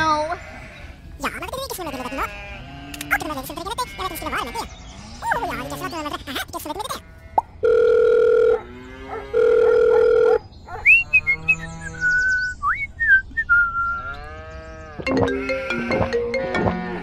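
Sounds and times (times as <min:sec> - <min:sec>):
phone ringing beep: 0:07.6 - 0:08.6, 0:09.4 - 0:10.4, 0:15.0 - 0:17.0
cartoon sliding whistles: 0:10.8 - 0:14.1
comic music: 0:15.0 - 0:17.0.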